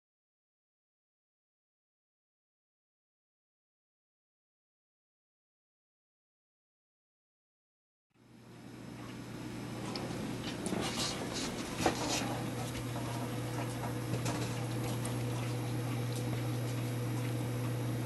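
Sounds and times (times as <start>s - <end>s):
steady low hum: 8.2s - 18.0s.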